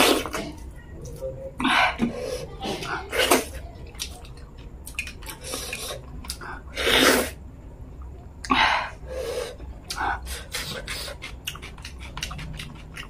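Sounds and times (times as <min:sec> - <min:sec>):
wet chewing: 0:02.8 - 0:07.4, 0:09.8 - 0:13.0
lip smacks: 0:04.0 - 0:06.5, 0:09.8 - 0:13.0
loud slurping: 0:06.7 - 0:07.4.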